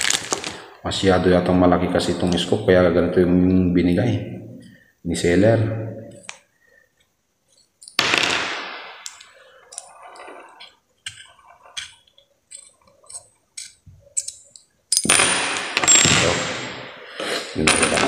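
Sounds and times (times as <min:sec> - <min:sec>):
metal parts clicking and tapping: 0:07.5 - 0:08.1, 0:09.0 - 0:16.2.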